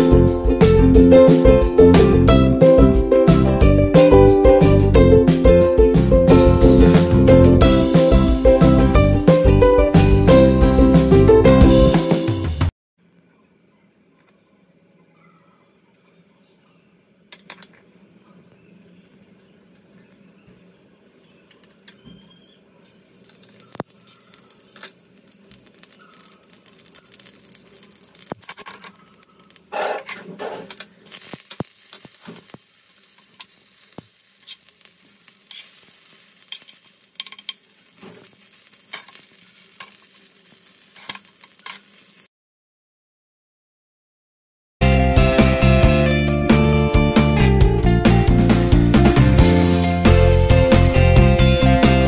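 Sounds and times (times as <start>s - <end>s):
seeds sizzling and popping in oil: 22.9s - 29.8s, 30.8s - 42.3s
leaves sizzling in oil: 22.9s - 29.9s, 30.9s - 42.3s.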